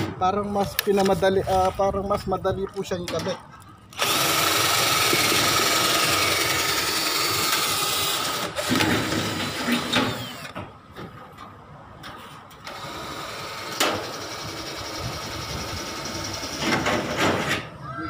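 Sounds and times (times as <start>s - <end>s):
power drill running: 4.0s - 10.6s, 12.6s - 17.2s.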